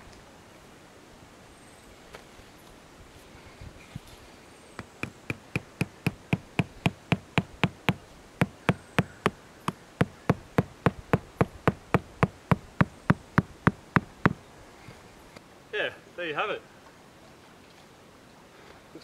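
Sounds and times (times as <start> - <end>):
hammer striking tent peg: 4.8 - 14.4.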